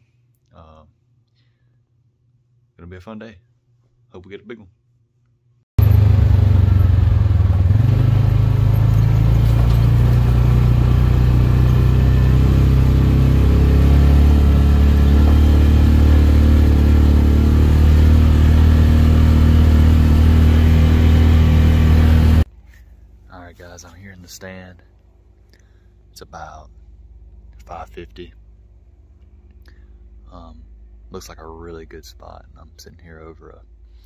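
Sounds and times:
off-road vehicle engine running: 5.8s - 23.0s.

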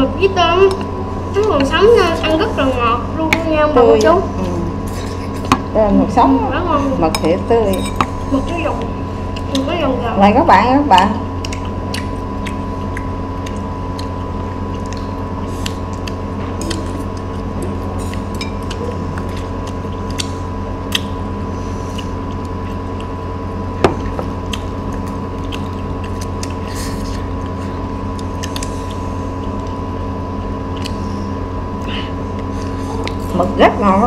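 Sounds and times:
machine hum with high whine: 0.0s - 34.0s
quiet eating sounds: 0.0s - 34.0s.

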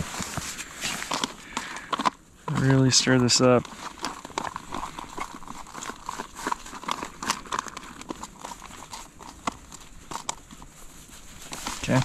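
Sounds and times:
utensil scraping foil pouch: 0.0s - 12.0s.

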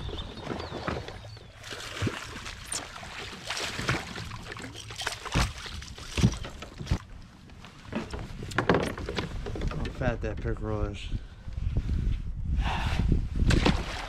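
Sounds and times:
knocks and clatter on kayak: 0.0s - 1.6s, 5.3s - 7.1s, 7.8s - 10.6s.

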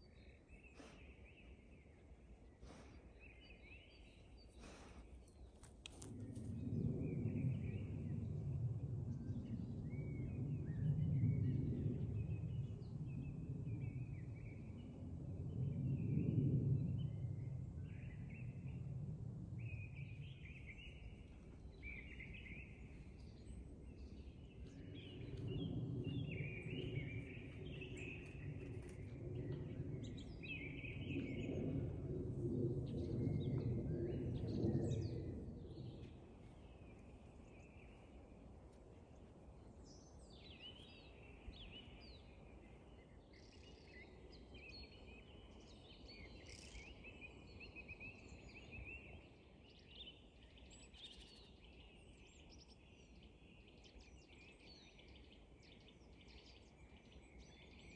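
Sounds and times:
songbirds singing and chirping: 0.0s - 57.9s
low rumble: 4.0s - 36.5s.

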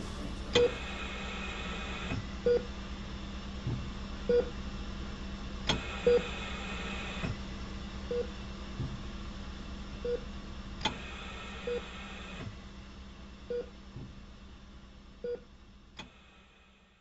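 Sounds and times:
patient monitor beeping: 0.0s - 1.0s
steady hum: 0.0s - 16.8s.

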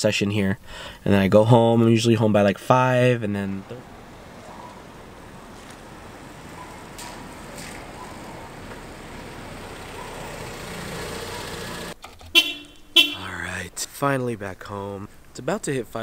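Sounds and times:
car engine and tyre noise: 3.3s - 13.7s.

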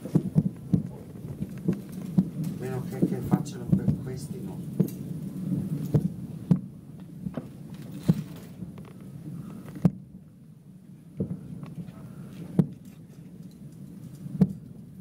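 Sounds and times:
distant firework booms: 0.0s - 10.2s, 11.2s - 11.6s, 12.4s - 12.8s
low rumble: 0.0s - 12.8s.

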